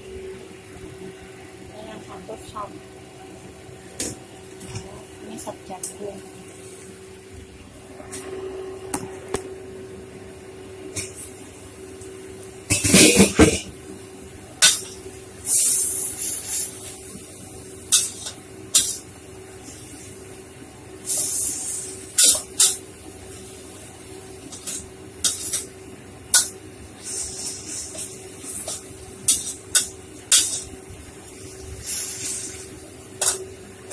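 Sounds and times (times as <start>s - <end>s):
steady low hum: 0.0s - 33.9s
greens sizzling in a wok: 14.6s - 20.4s, 21.0s - 33.9s.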